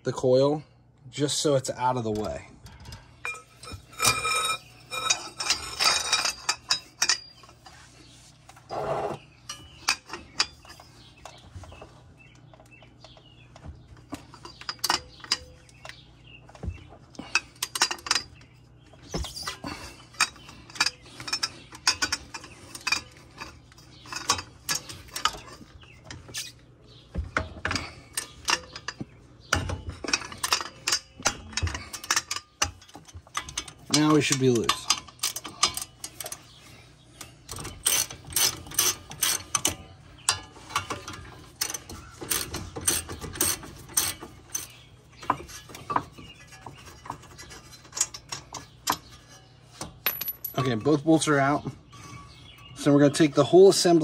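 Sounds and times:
metal tool clinks and clicks: 50.0 - 50.8.

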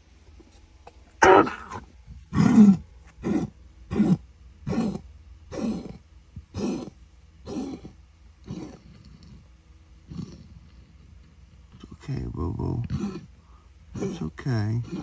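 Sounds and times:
dog's rasping laboured breaths: 8.5 - 9.5.

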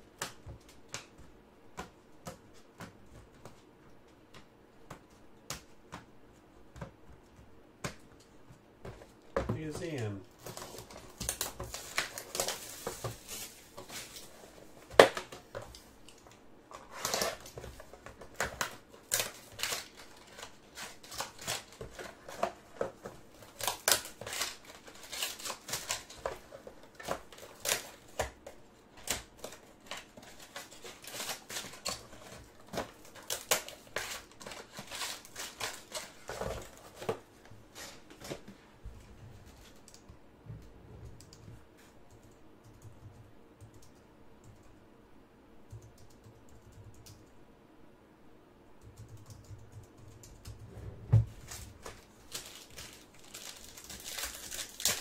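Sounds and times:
plastic wrap tearing and crinkling: 9.6 - 14.4, 16.7 - 22.6, 23.3 - 28.3, 29.0 - 37.1, 51.4 - 55.0.

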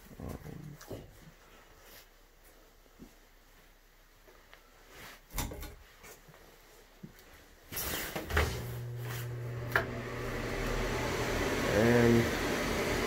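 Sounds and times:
exhaust fan whirring: 8.3 - 13.0.

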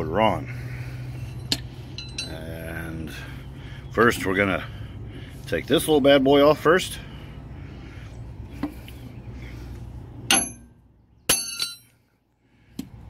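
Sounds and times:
steady low hum: 0.0 - 13.0
wrench clanking on metal hub: 1.3 - 2.8, 10.3 - 10.7, 11.3 - 12.0.

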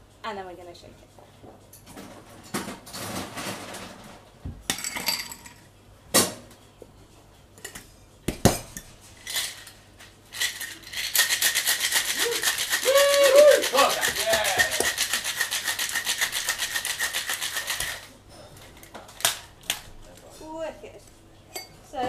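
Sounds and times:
ice rattling in shaker: 10.3 - 18.1.

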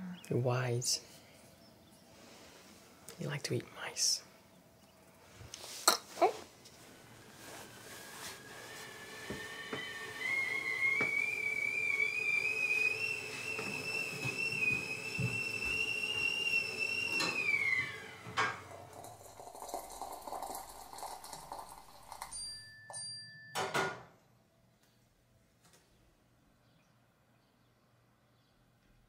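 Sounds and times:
stovetop kettle whistling: 6.8 - 23.7.

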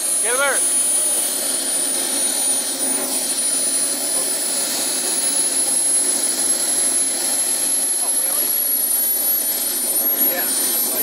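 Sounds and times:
model jet turbines idling whine: 0.0 - 11.0.

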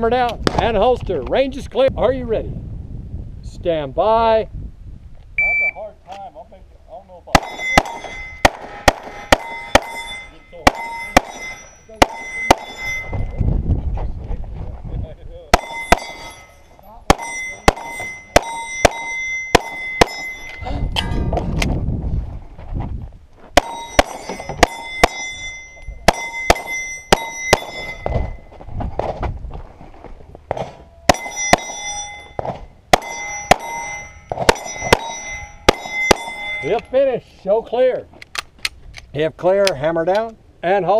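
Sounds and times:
pistol shots: 7.4 - 10.1, 10.7 - 13.0, 17.1 - 20.4, 23.6 - 25.3, 26.1 - 28.1, 32.4 - 36.5
steel targets ringing: 7.4 - 13.4, 15.5 - 21.5, 23.6 - 28.5, 30.7 - 37.0.

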